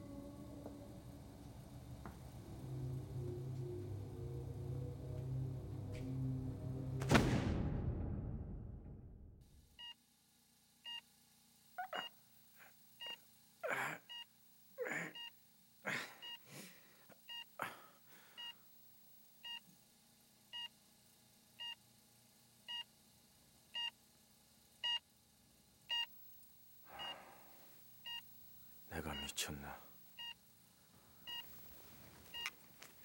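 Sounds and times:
patient monitor beeping: 11.8s - 12.1s, 13.0s - 15.3s, 15.9s - 16.4s, 17.2s - 17.5s, 18.4s - 18.6s, 19.4s - 19.6s, 24.8s - 25.0s, 25.9s - 26.2s, 26.8s - 30.4s, 31.2s - 33.0s.

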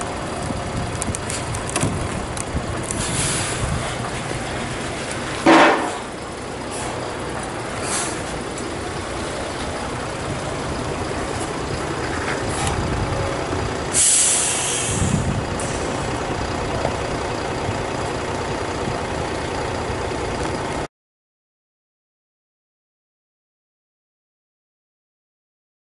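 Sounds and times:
bus chassis running noise: 0.0s - 20.9s
air brakes hissing: 2.9s - 3.8s, 5.4s - 8.5s, 13.9s - 16.1s.

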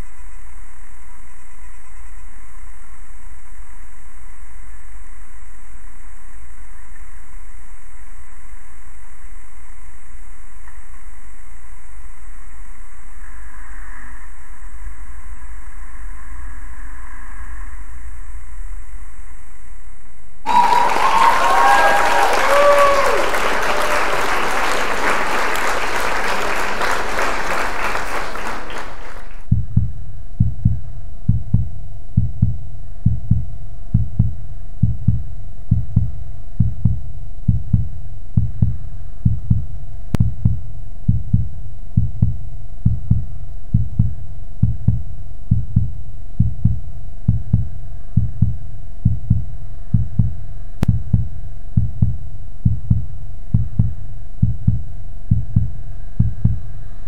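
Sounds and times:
slow low thumping: 29.4s - 56.8s.

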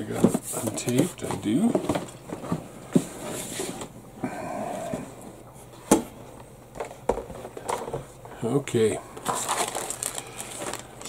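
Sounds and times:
cardboard rustling and scraping: 0.0s - 4.0s, 9.2s - 11.0s.

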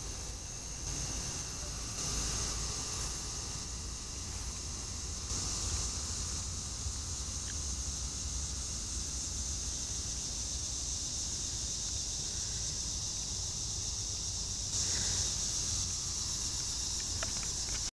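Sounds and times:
insects chirping chorus: 0.0s - 17.9s
faint ticks: 7.4s - 7.7s, 16.6s - 17.9s.

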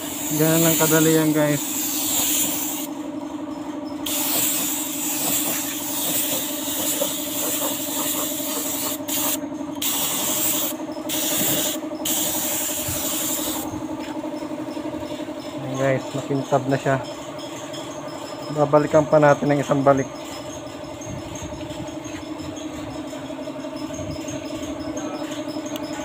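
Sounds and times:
air spray gun hissing: 0.0s - 2.9s, 4.0s - 13.7s
steady low hum: 0.0s - 26.0s.

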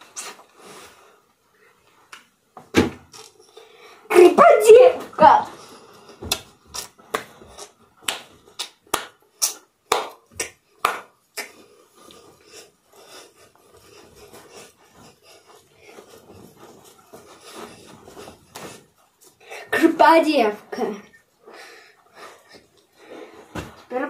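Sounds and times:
clothing rustling: 11.7s - 19.5s.

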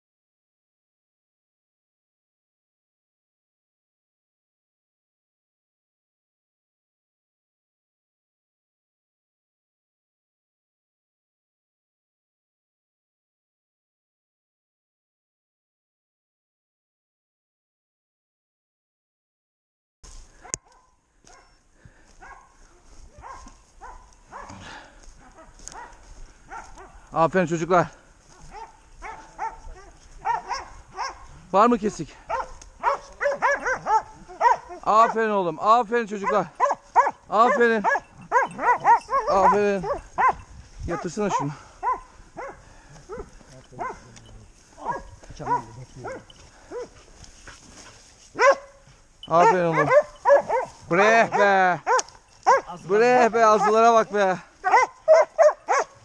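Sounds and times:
dogs barking: 20.4s - 27.2s, 28.2s - 35.4s, 36.1s - 44.2s, 44.8s - 47.1s, 48.3s - 56.0s.

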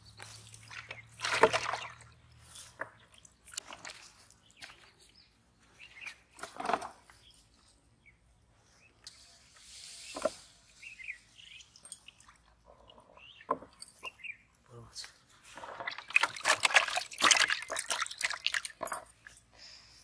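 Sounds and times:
birds chirping: 0.0s - 15.2s
water splashing in a plastic tub: 0.3s - 4.4s, 15.5s - 19.0s.

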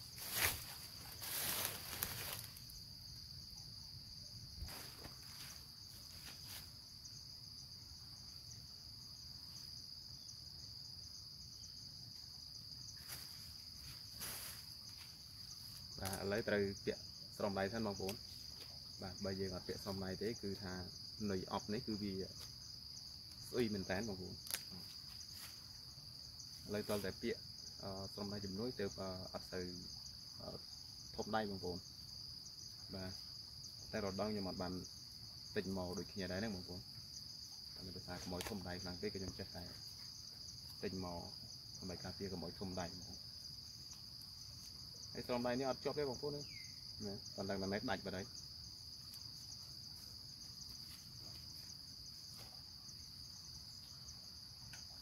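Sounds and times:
crickets chirping: 0.0s - 55.0s
man talking: 16.0s - 18.2s, 26.7s - 29.8s, 35.6s - 36.8s, 37.8s - 39.8s, 40.8s - 43.1s, 47.0s - 48.3s.

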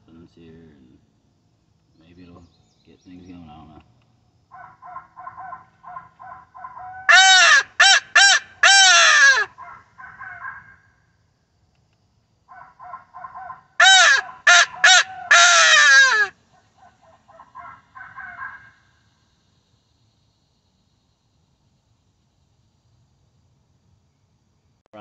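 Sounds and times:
owl call hoots: 4.5s - 10.8s, 12.5s - 18.8s.

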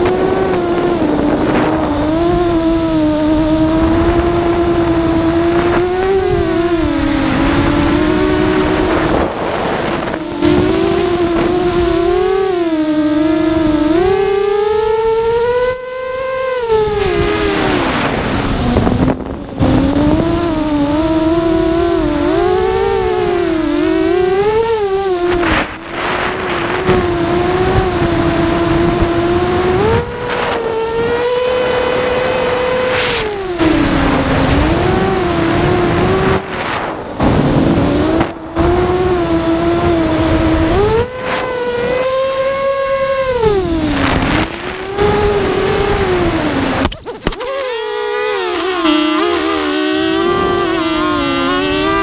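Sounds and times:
drone motors whining: 0.0s - 52.0s
propeller striking straps: 43.2s - 52.0s.

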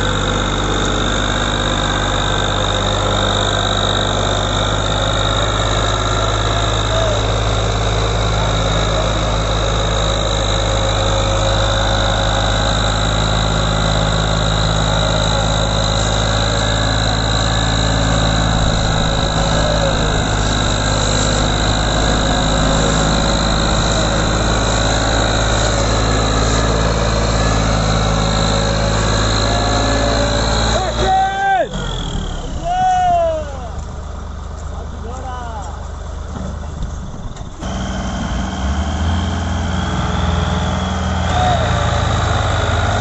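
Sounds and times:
high whine: 0.0s - 33.8s
tractor diesel engine under load: 0.0s - 43.0s.

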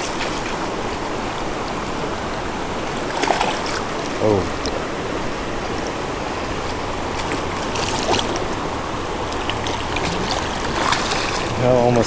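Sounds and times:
creek water rushing: 0.0s - 12.0s
fish splashing at surface: 3.0s - 4.1s, 6.7s - 8.6s, 9.3s - 11.6s.

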